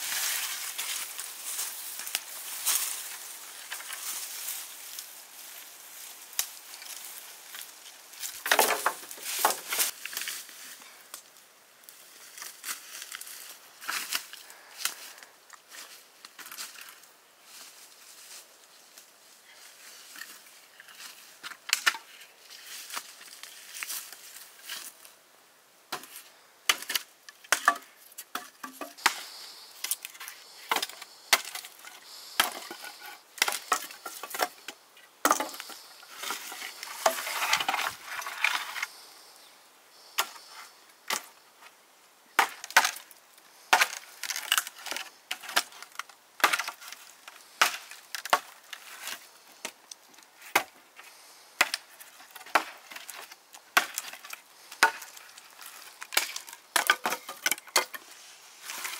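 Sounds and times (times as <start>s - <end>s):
sharp wooden knocks and cracks: 8.4s - 9.9s, 56.0s - 58.0s.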